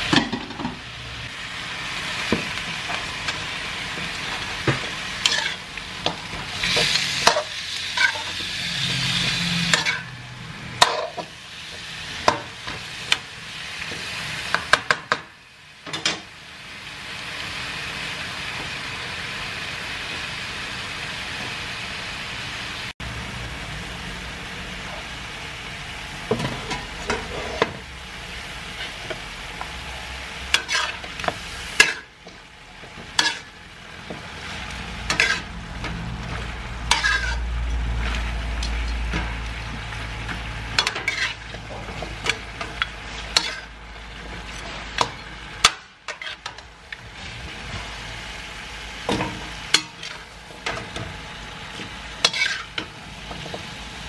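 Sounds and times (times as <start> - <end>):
food sizzling in a wok: 0.0 - 54.0
metal spoon scraping: 30.6 - 31.2, 36.9 - 37.5, 40.8 - 41.6, 52.2 - 52.8.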